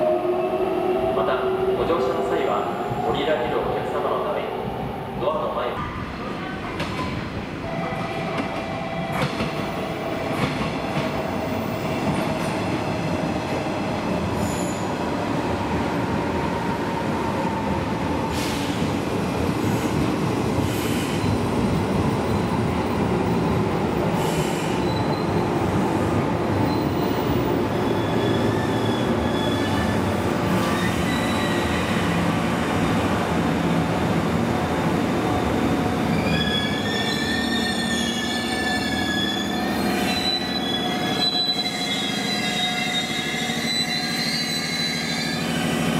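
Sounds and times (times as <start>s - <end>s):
wheel and brake squeals: 27.8s - 32.0s, 36.1s - 45.7s.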